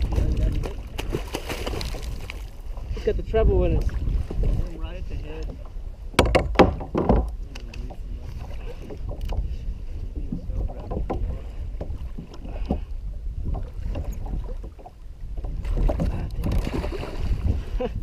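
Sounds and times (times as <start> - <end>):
water lapping around kayak: 0.0 - 18.0
wind buffeting microphone: 0.0 - 18.0
small knocks and clicks: 6.2 - 8.0, 8.9 - 9.5.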